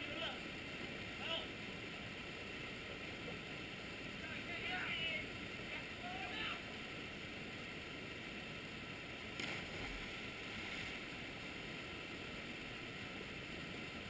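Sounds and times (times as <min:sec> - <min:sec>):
person jumping into water splash: 0:09.4 - 0:11.0.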